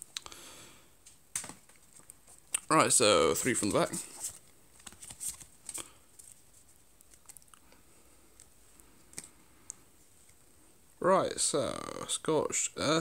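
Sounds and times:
trading cards rustling and tapping: 3.3 - 7.4.

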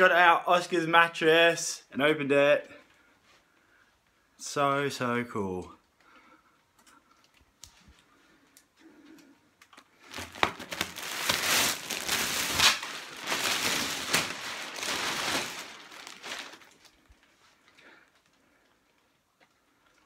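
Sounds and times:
plastic packaging crinkling: 9.7 - 20.0.

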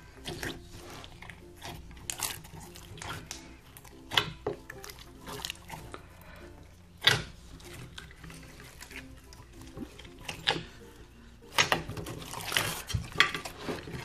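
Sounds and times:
slime squelching and clicking: 0.0 - 6.2, 6.9 - 14.0
slime tearing: 0.0 - 6.2, 11.4 - 14.0.

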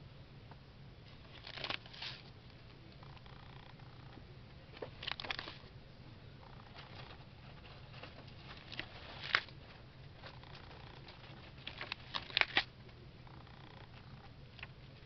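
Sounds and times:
faint low hum: 0.0 - 15.0
paper pages turning: 1.2 - 2.4, 4.8 - 5.7, 6.4 - 12.7.

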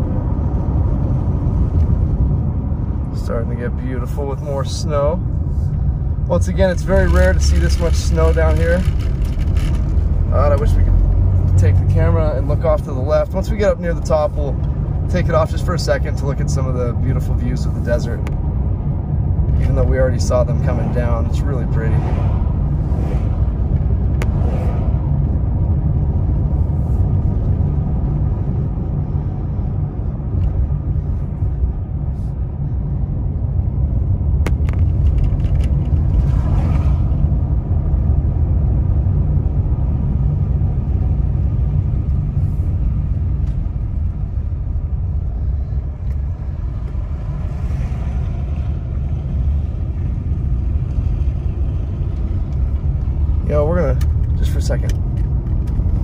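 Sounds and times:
car road noise inside cabin: 0.0 - 56.0.

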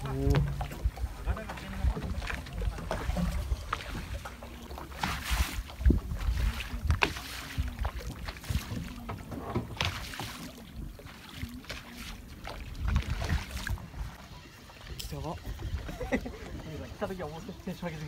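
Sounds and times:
water sloshing against boat: 0.0 - 18.0
wind on microphone: 5.0 - 9.9, 12.5 - 17.0.

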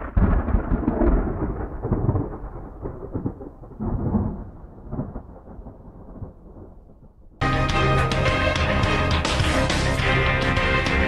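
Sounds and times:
rolling thunder: 0.0 - 7.4.

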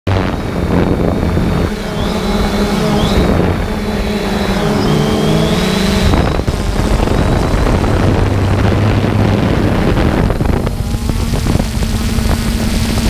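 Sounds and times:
drone motors and propellers whirring: 0.1 - 13.0.

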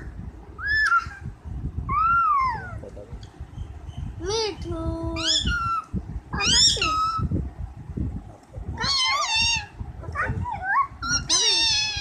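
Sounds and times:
parakeet calls: 1.9 - 2.8, 3.5 - 7.3, 8.8 - 9.8, 10.4 - 12.0.

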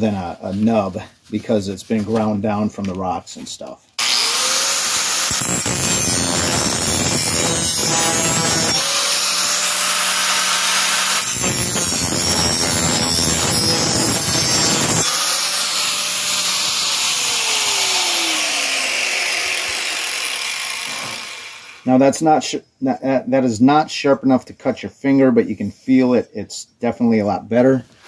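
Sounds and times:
angle grinder grinding metal: 4.0 - 21.9
grinder motor whine: 4.0 - 21.9.

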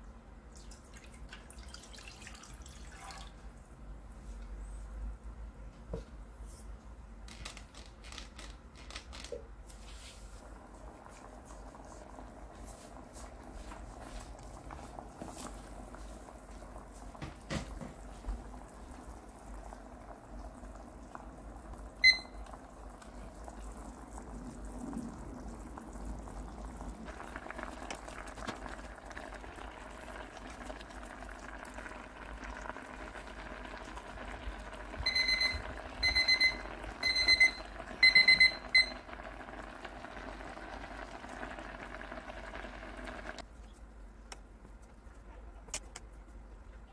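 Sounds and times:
water boiling and bubbling: 0.4 - 3.9, 9.5 - 43.5
timer alarm beeping: 22.0 - 22.4, 35.0 - 39.0
timer beep: 22.0 - 22.4, 35.1 - 39.0.

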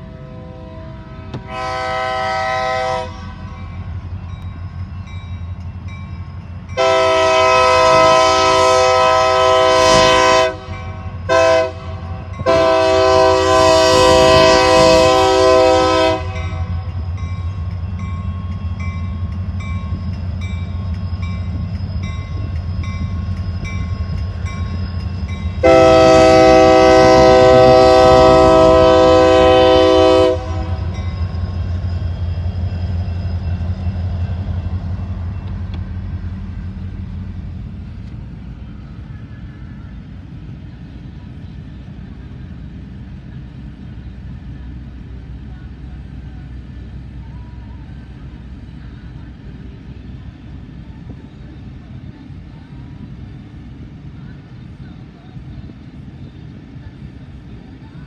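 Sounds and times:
locomotive horn blasts: 0.0 - 3.5, 6.8 - 17.0, 25.6 - 31.4.

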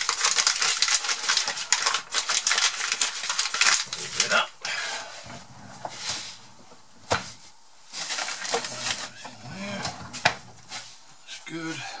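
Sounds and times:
rustling: 5.2 - 11.2.

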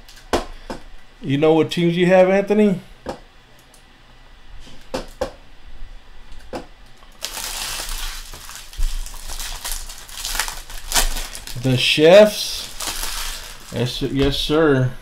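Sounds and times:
foil wrapper crinkling: 7.1 - 14.2.

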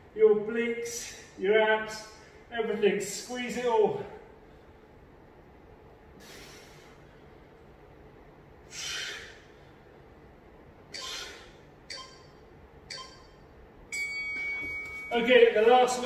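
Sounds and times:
sharp hissing exhales: 6.2 - 7.0, 8.7 - 9.4
man breathing hard: 6.2 - 7.6, 8.6 - 10.0, 10.9 - 11.7.

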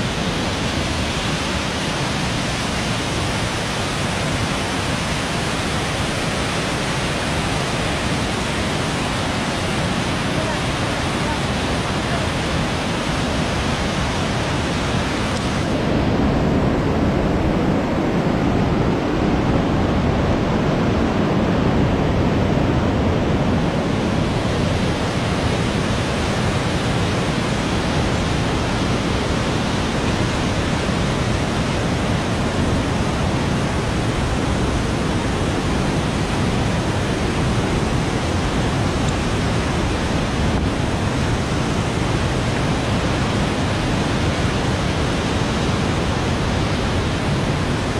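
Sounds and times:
river rapids rushing: 0.0 - 47.9.

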